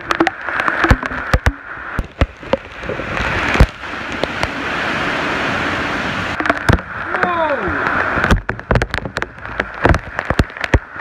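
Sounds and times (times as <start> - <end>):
sharp irregular cracks and taps: 0.0 - 2.9, 6.4 - 7.0, 8.2 - 11.0
heavy wind-driven rain: 0.0 - 11.0.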